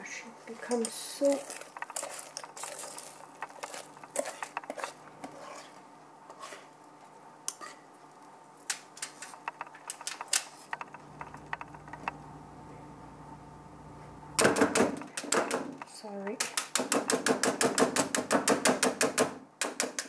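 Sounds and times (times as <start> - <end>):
faint steady hum: 0.0 - 19.6
spatula scraping metal pot: 0.6 - 6.8.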